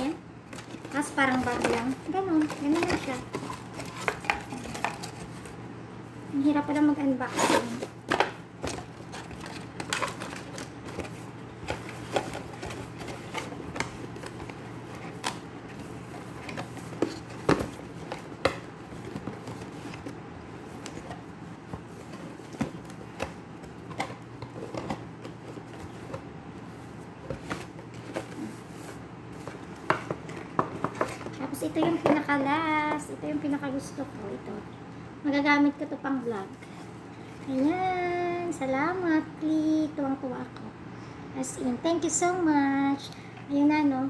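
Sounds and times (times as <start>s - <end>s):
steady low hum: 0.0s - 44.0s
packaging clicks and rustles: 0.5s - 5.6s, 7.4s - 26.2s.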